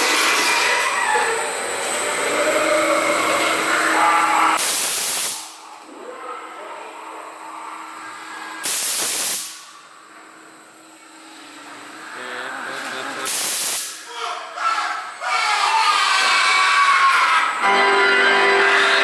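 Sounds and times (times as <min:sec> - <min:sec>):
steady hum: 0:00.0 - 0:19.0
compressed air hissing blasts: 0:04.6 - 0:05.6, 0:08.6 - 0:09.7, 0:13.2 - 0:14.1.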